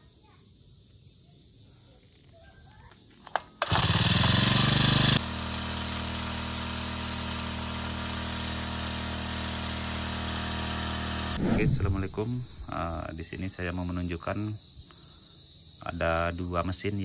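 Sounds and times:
power sprayer engine running: 3.6 - 12.7.

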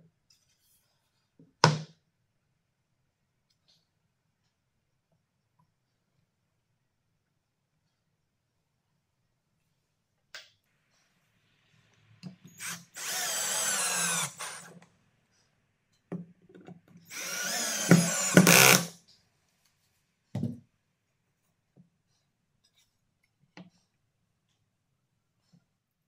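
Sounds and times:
cordless drill driving screws: 12.5 - 14.7, 17.0 - 19.0.

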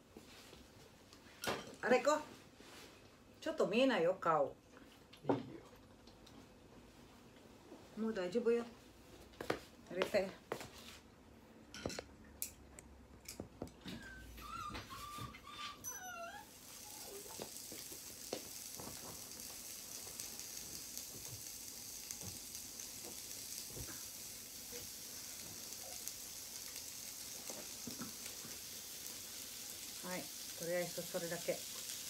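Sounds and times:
meat sizzling on a grill: 16.4 - 32.0.

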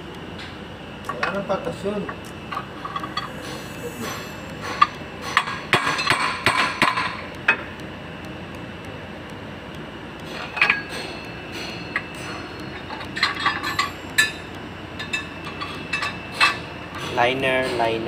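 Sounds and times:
hand tools striking metal: 2.0 - 7.6, 10.2 - 17.9.

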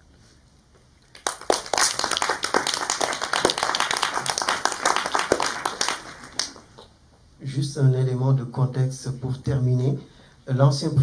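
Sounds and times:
audience applauding: 1.1 - 6.8.

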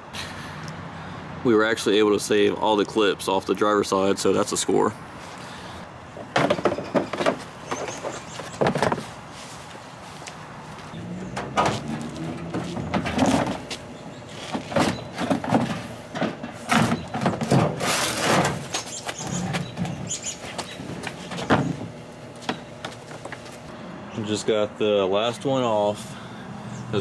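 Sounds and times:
plastic scraping: 14.4 - 20.1.

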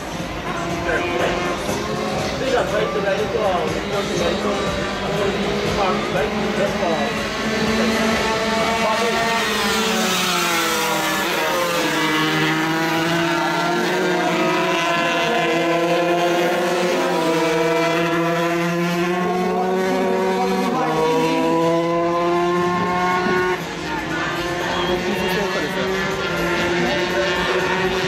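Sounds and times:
racing motorcycle engines revving: 0.0 - 28.0.

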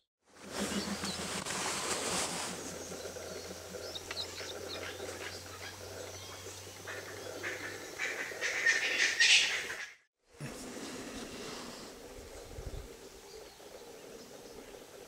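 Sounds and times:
wild birds chirping: 0.4 - 15.0.

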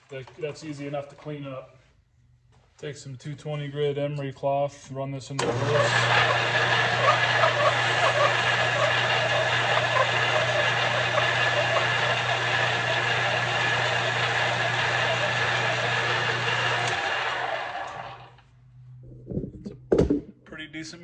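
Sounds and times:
emery cloth polishing spinning part: 5.4 - 18.4
lathe motor hum and whine: 5.4 - 18.4.

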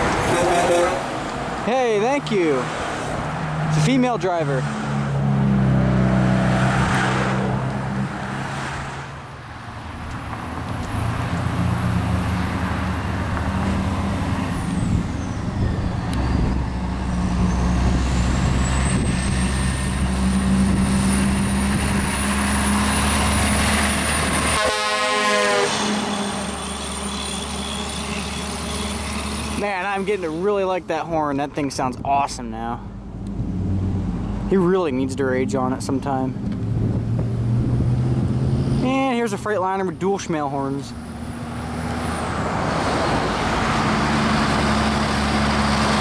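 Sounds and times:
road noise: 0.0 - 46.0
truck engine: 0.0 - 46.0
truck air horn blasts: 0.2 - 1.2, 24.5 - 29.0.

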